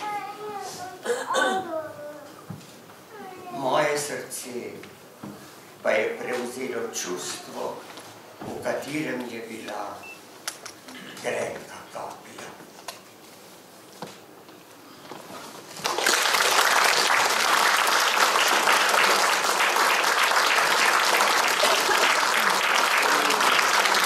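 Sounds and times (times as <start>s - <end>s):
audience applause: 15.8s - 24.0s.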